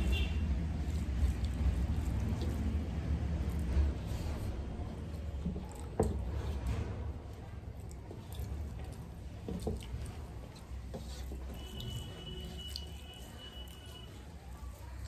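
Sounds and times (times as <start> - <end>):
fingers squishing rice: 0.0 - 6.6, 7.2 - 15.0.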